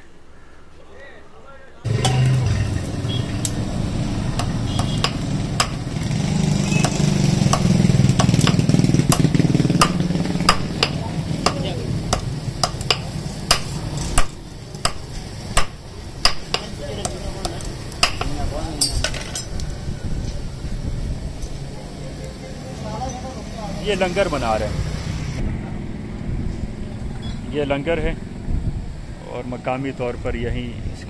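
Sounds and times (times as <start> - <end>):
hammer striking iron on anvil: 1.9 - 2.5, 4.4 - 5.9, 6.8 - 19.1.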